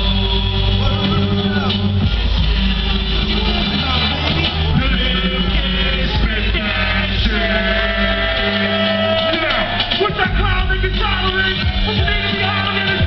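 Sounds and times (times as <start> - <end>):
hip-hop backing track with heavy bass: 0.0 - 13.0
person rapping: 3.4 - 13.0.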